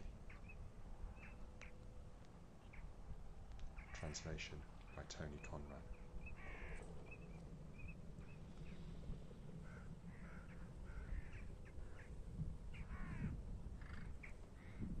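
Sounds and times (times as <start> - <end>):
low steady rumble: 0.0 - 15.0
crows cawing: 3.8 - 4.4, 6.2 - 7.4, 9.6 - 14.8.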